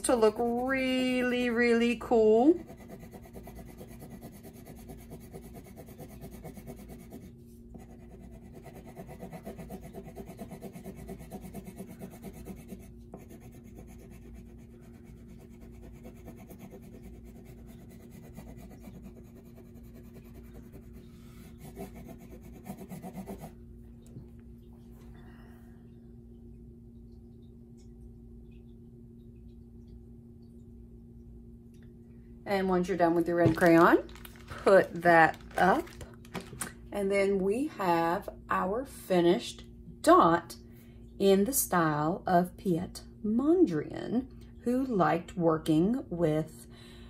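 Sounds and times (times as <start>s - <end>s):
crayon scratching on paper: 2.5s - 23.5s.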